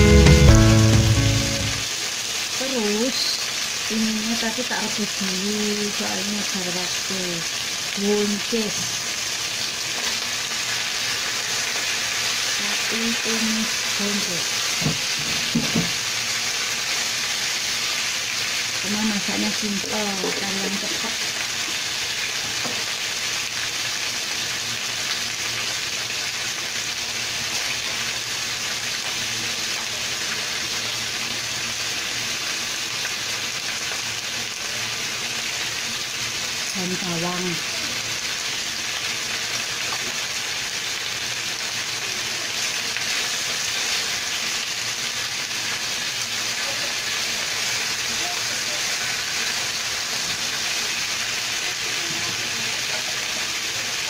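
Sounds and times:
food sizzling in a frying pan: 0.0 - 54.0.

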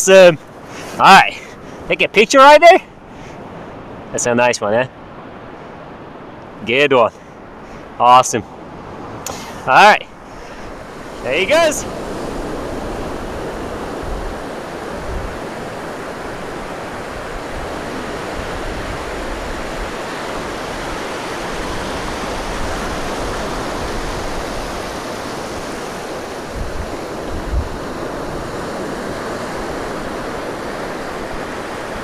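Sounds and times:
ocean surf breaking: 0.0 - 32.0
wind bumps on microphone: 11.9 - 15.9, 17.0 - 29.4.

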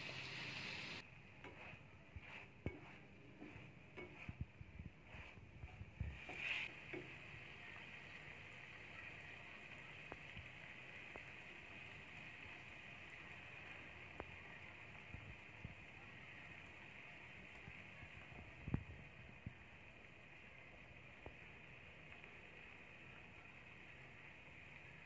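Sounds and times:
food sizzling in a frying pan: 0.0 - 1.0, 6.0 - 25.0
spatula tapping pan: 1.4 - 4.4, 6.1 - 7.4.

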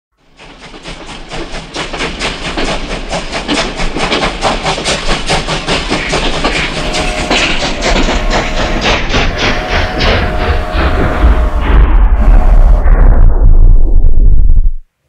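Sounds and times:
train wheels clattering: 0.2 - 12.8
steady held tone: 6.6 - 14.9.

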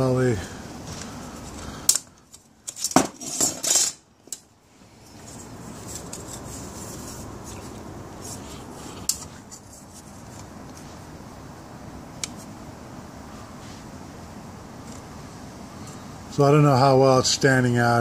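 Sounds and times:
faint hiss: 6.4 - 18.0.

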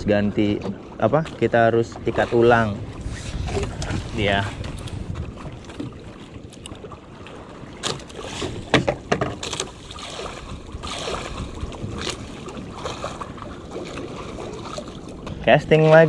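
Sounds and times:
wind on microphone: 0.0 - 0.8, 1.4 - 7.0, 7.6 - 16.0
water moving around boat: 0.0 - 16.0
sharp knocks and clicks: 8.7 - 9.7.

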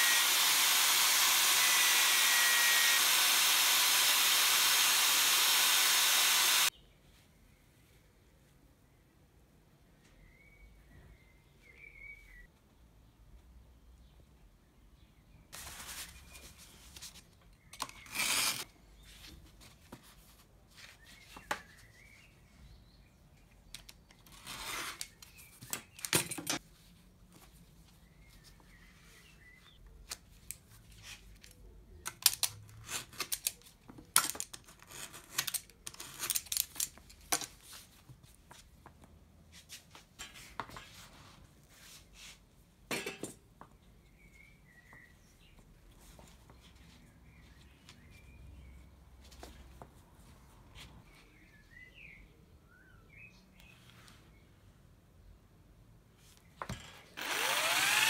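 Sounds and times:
tools tapping and clicking: 42.9 - 43.4.

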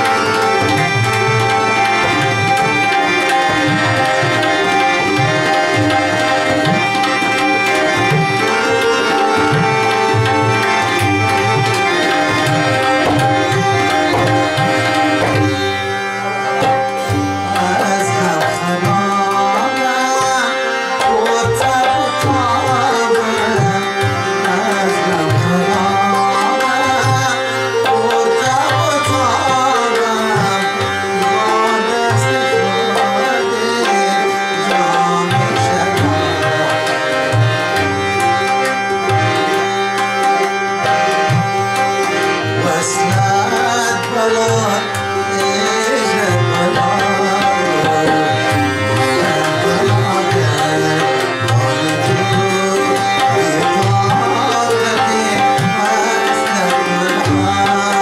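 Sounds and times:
harmonium notes: 0.0 - 58.0
man singing: 0.0 - 58.0
tabla rhythm: 0.0 - 58.0.

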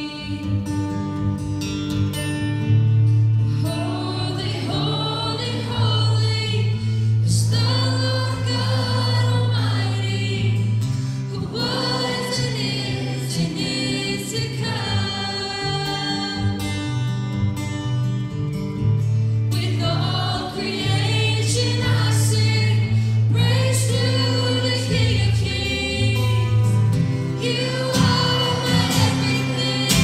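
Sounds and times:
acoustic guitar: 0.0 - 30.0
many voices singing together: 3.6 - 17.1, 19.6 - 30.0.

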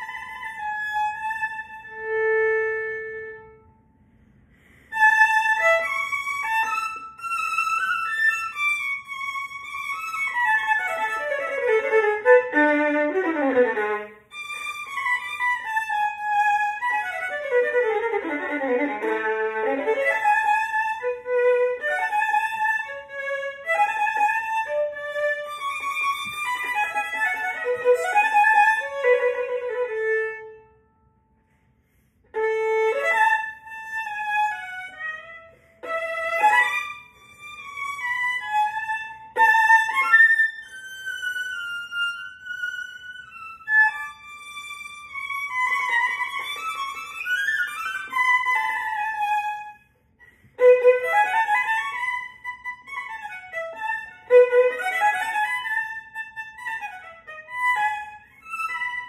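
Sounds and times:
solo violin: 0.0 - 59.0.

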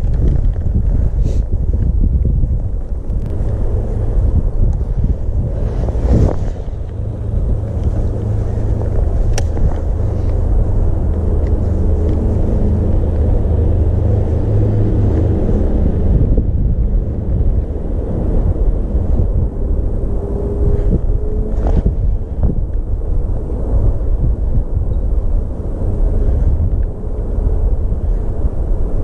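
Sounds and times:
road traffic rumble: 0.0 - 29.0.

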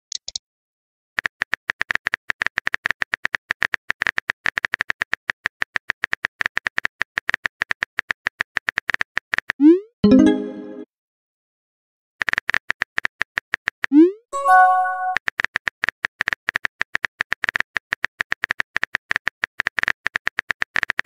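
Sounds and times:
short pitched chime: 14.4 - 15.2.

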